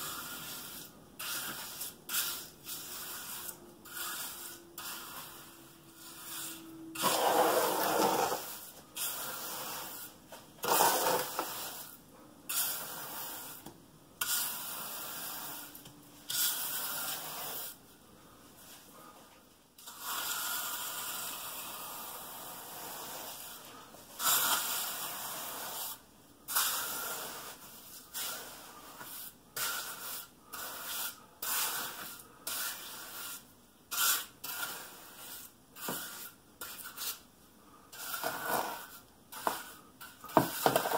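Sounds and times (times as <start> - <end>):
trowel scraping wet concrete: 0.1 - 11.9, 24.2 - 25.9, 26.5 - 37.2, 38.0 - 40.9.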